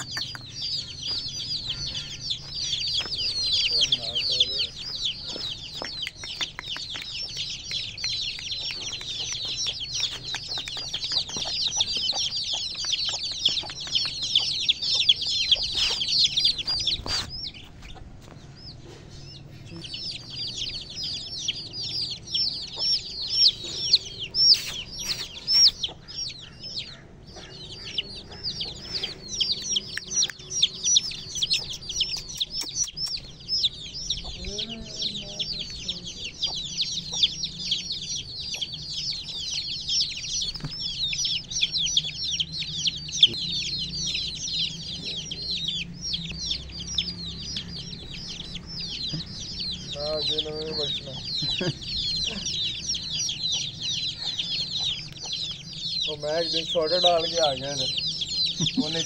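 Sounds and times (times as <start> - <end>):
chicks peeping: 0.0 - 59.0.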